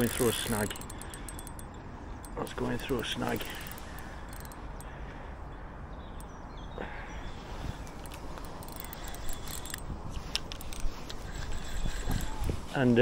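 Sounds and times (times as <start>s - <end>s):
sharp clicks and ticks: 0.0s - 4.9s, 7.9s - 12.5s
wind rumbling on microphone: 7.3s - 13.0s.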